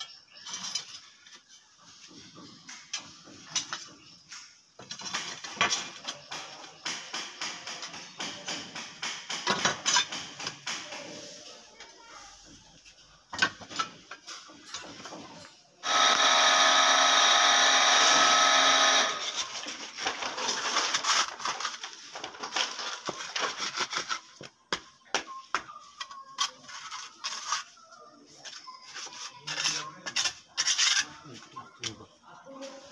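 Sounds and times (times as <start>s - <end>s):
trowel scraping wet concrete: 28.4s - 31.2s.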